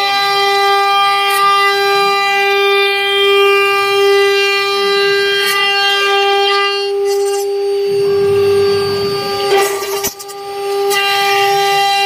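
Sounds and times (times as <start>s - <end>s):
end mill cutting aluminum: 7.2s - 11.0s
router spindle whining: 7.3s - 11.1s
low rumble: 7.8s - 9.7s.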